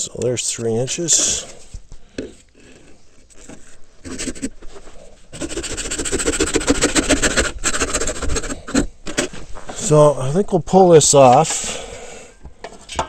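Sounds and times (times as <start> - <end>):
hand saw cutting plastic pipe: 2.6 - 9.4.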